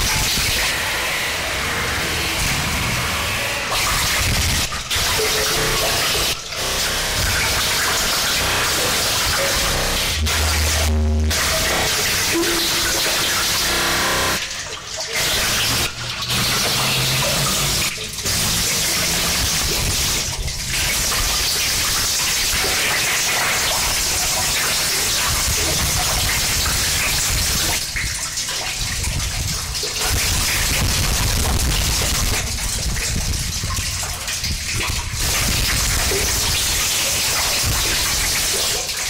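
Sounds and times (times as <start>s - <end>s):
distorted electronic static: 0.0s - 14.4s, 15.2s - 21.6s, 30.0s - 32.5s, 35.2s - 38.0s.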